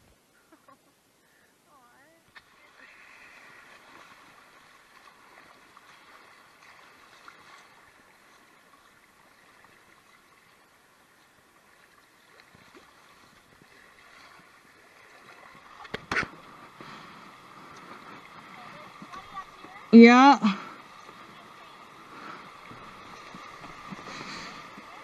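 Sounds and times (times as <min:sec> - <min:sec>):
river rapids: 0:13.7 - 0:25.0.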